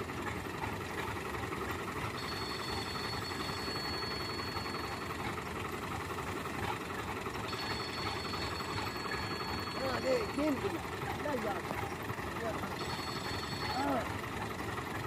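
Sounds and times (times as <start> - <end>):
tractor engine running: 0.0 - 15.0
faint high whine: 2.2 - 5.1, 7.5 - 10.7.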